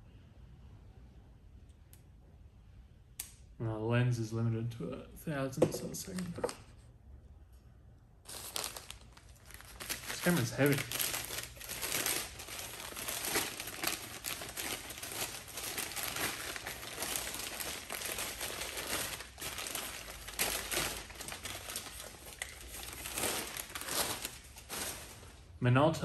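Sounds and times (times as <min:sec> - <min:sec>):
newspaper crumpling and rustling: 0:05.8 - 0:06.7, 0:08.3 - 0:25.6.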